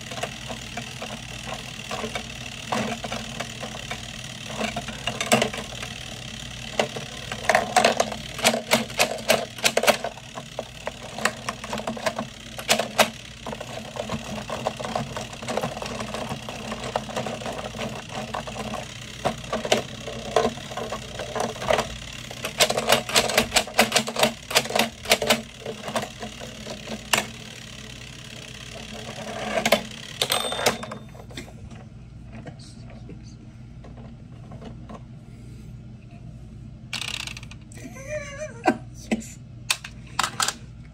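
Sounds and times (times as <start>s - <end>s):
plastic toy clicks and clatter: 0.0s - 31.0s, 37.0s - 37.6s, 39.7s - 40.6s
clockwork timer ticking buzz: 0.0s - 31.1s.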